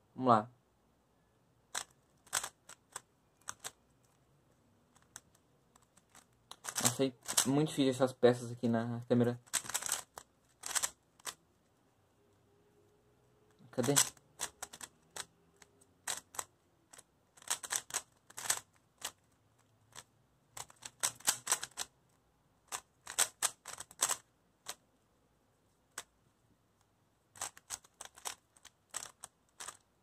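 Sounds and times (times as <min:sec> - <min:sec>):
puzzle cube clicking: 0:01.7 - 0:04.2, 0:04.8 - 0:07.6, 0:09.4 - 0:11.4, 0:13.6 - 0:24.8, 0:27.3 - 0:30.0.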